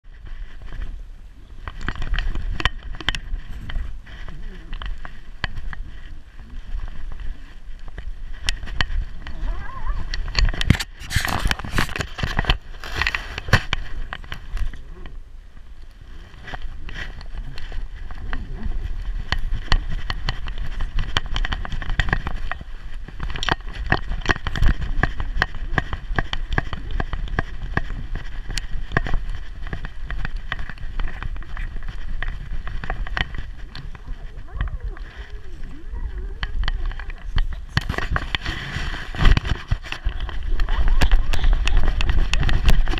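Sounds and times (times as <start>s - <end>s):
steady low rumble: 0.1s - 42.9s
camera mount knocking and scraping: 10.3s - 14.3s.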